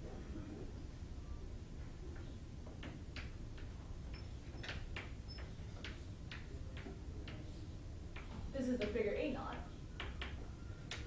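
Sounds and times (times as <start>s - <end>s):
low room hum: 0.0s - 11.0s
pen ticking on a board: 2.7s - 7.5s, 8.1s - 11.0s.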